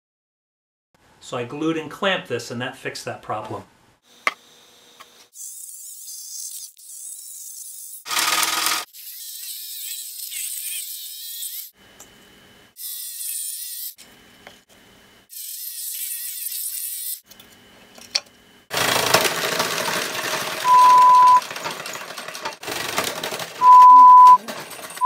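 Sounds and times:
scroll saw rasping through wood: 8.0s - 11.7s
rattling: 18.8s - 23.6s
steady beep: 20.6s - 21.4s, 23.6s - 24.4s.

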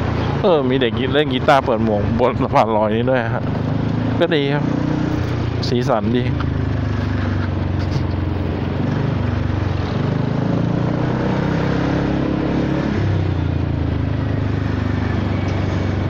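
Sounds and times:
scooter engine running at low revs: 0.0s - 16.0s.

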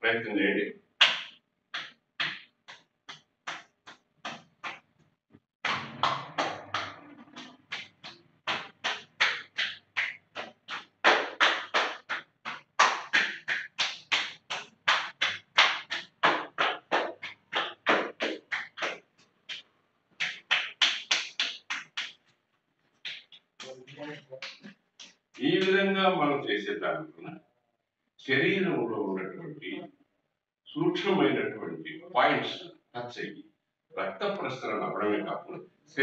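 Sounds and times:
palms slapping bare skin: 1.0s - 4.9s, 5.6s - 22.3s, 23.0s - 23.7s, 24.4s - 25.8s.

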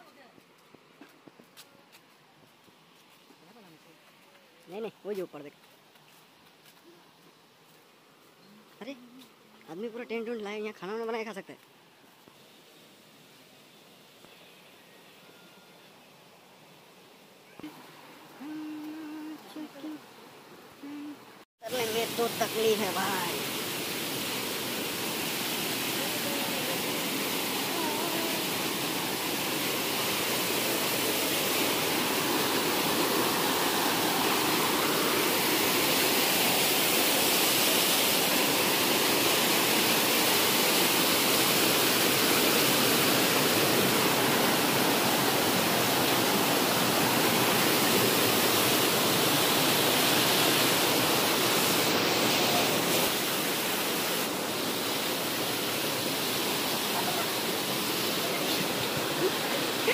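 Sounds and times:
waterfall rushing over rocks: 21.2s - 59.9s.

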